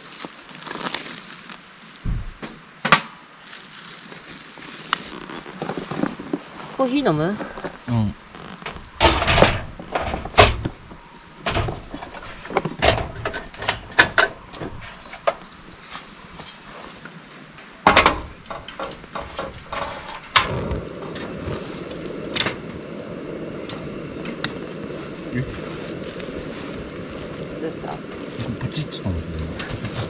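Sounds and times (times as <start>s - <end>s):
gas stove burner hissing: 18.0s - 30.0s.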